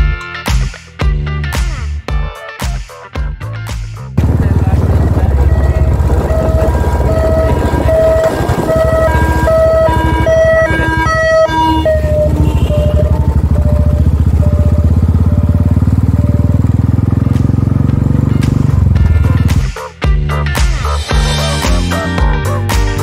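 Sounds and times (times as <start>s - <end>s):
motorcycle engine rumble: 4.1s - 22.6s
short pitched notes: 4.2s - 16.6s.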